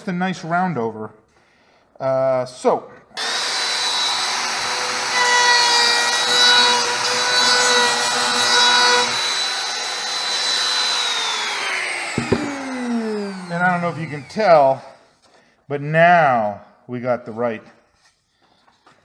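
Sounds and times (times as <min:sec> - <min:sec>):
trim router running: 0:03.2 - 0:14.8
router bit cutting foam board: 0:03.2 - 0:15.0.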